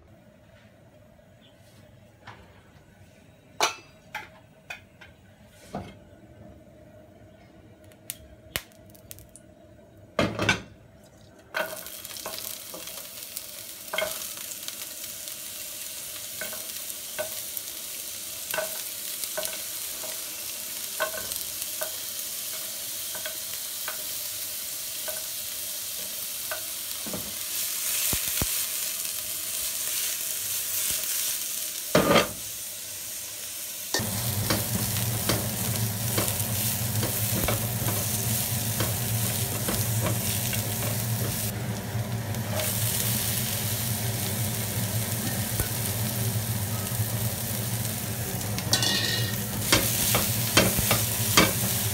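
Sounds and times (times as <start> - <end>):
vegetables sizzling in oil: 11.5 - 51.9
spatula tapping wok: 34.0 - 41.5, 48.7 - 51.8.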